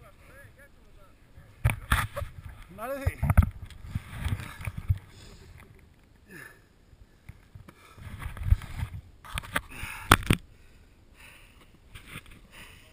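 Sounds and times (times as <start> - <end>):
soft breaths: 3.7 - 12.9
snow and clothing rustling: 3.8 - 5.6.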